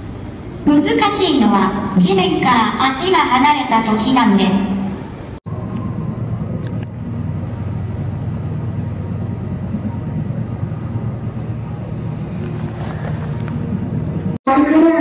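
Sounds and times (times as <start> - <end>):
low rumble in large hall: 0.0 - 15.0.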